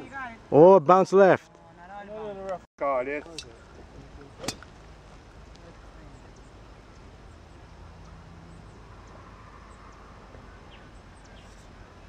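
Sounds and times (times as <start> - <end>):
faint bird chirps: 6.0 - 12.0.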